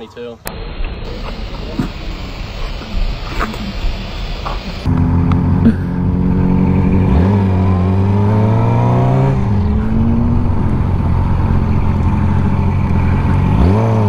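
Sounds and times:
steady rushing noise: 0:00.5 - 0:14.0
motorcycle engine: 0:04.8 - 0:14.0.

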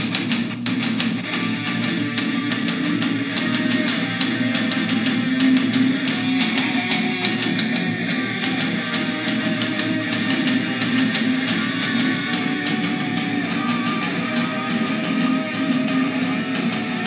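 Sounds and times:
guitar music with steady beat: 0:00.0 - 0:17.0.

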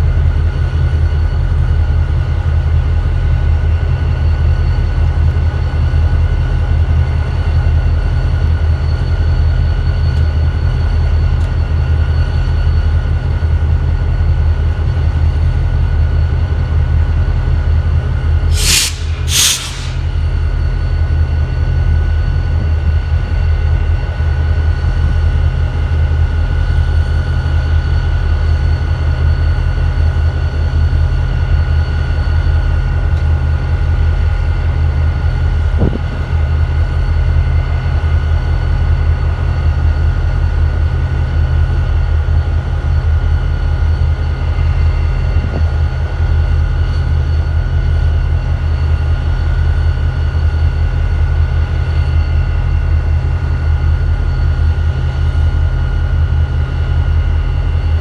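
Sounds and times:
diesel locomotive idling: 0:13.2 - 0:24.8
short hisses: 0:18.5 - 0:20.8.

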